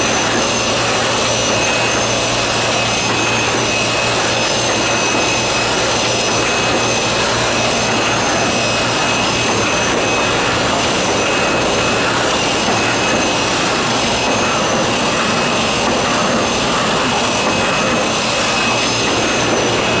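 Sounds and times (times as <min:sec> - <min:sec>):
high machine whine: 0:00.0 - 0:20.0.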